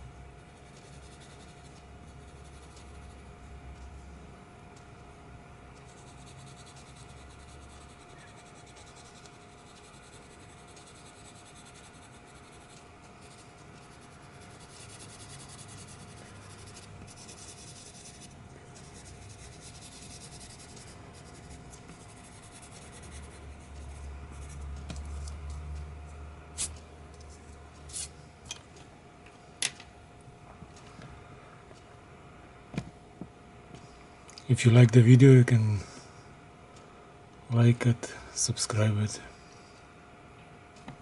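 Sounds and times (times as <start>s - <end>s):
pencil scratching on paper: 0.4s - 3.2s, 5.8s - 24.7s.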